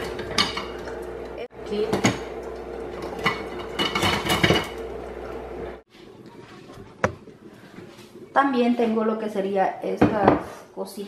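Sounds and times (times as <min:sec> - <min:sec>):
kitchen utensils clattering: 0:00.0 - 0:01.0, 0:03.0 - 0:04.8.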